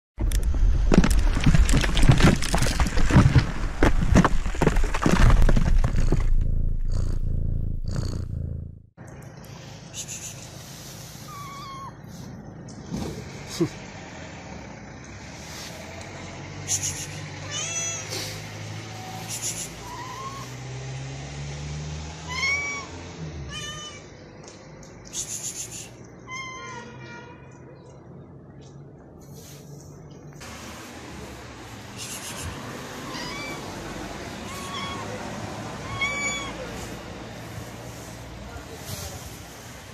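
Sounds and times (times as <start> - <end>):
cracking crumbling impacts: 0.2 - 7.0
low rumble: 0.2 - 9.0
low hum: 5.1 - 9.4
cat meowing: 11.3 - 12.0, 33.0 - 33.7, 34.4 - 35.2, 35.8 - 36.8.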